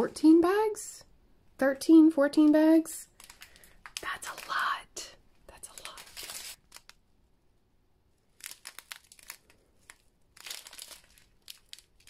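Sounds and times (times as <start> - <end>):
plastic bags crinkling: 3.0 - 4.8, 5.5 - 7.0, 8.3 - 12.0.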